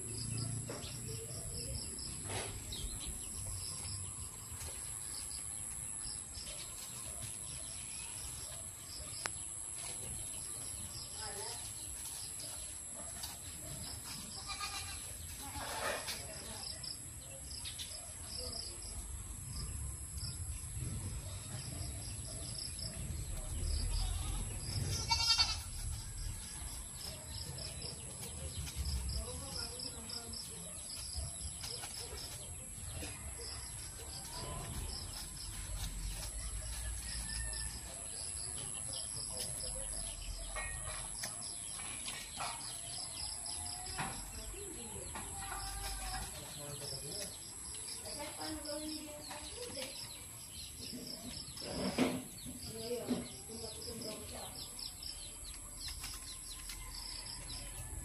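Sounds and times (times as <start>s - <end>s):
goats bleating: 14.4s - 15.1s, 23.9s - 25.7s.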